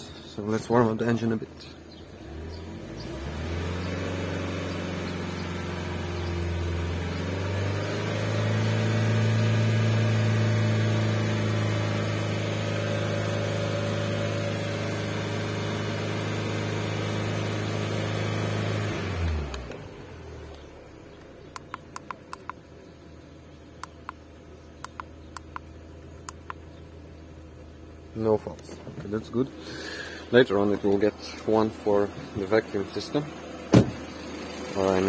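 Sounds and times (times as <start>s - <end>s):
car engine running: 0.0s - 35.0s.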